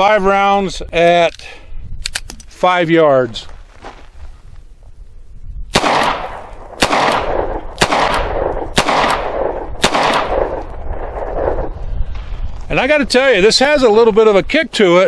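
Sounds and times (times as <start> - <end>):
revolver gunshots with echo: 5.7 - 11.8.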